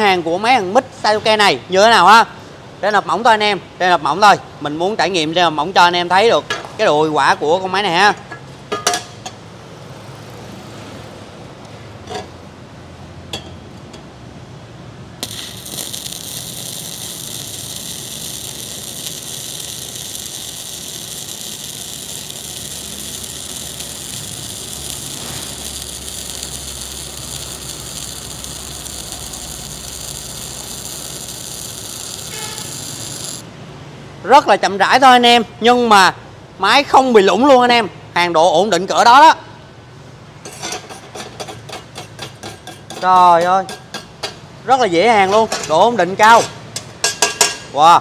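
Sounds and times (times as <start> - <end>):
welder arc crackling and hissing: 15.2 - 33.5.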